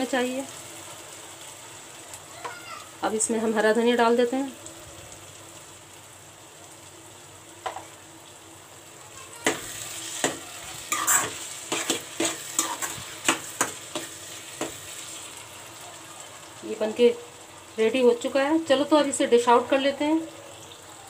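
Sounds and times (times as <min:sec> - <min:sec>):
low frying sizzle: 0:00.0 - 0:21.0
utensil clacking and scraping pan: 0:09.4 - 0:15.0.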